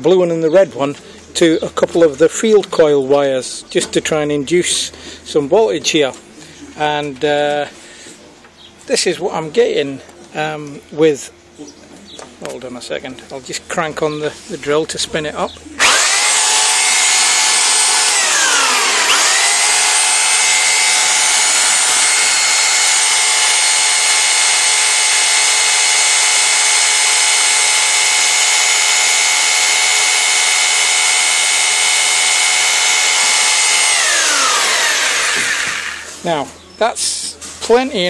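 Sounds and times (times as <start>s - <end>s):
cordless drill high whine: 15.8s - 36.2s.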